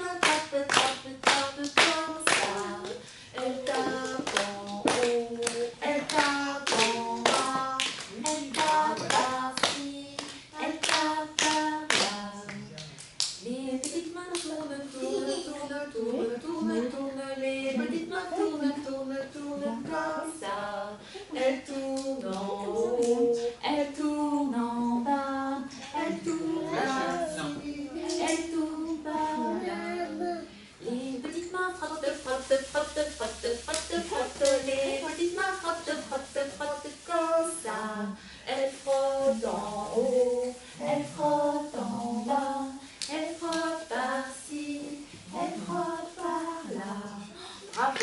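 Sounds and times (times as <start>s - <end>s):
woman singing unaccompanied: 0.0s - 48.0s
hand claps: 0.2s - 3.0s, 3.6s - 14.7s.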